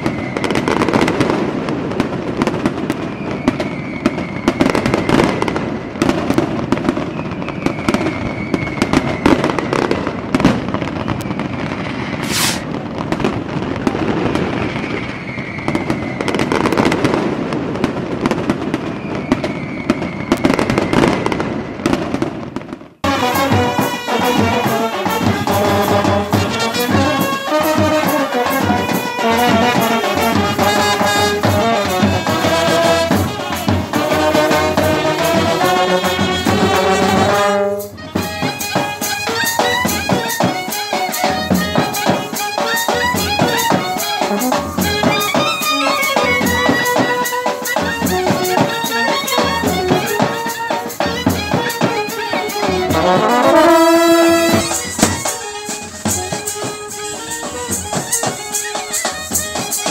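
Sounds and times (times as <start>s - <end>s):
brass band playing with drums: 0.0s - 14.9s, 23.0s - 59.9s
falling firework whistles: 0.0s - 24.1s, 42.8s - 51.2s, 52.9s - 59.9s
fireworks crackling and banging: 0.0s - 59.9s.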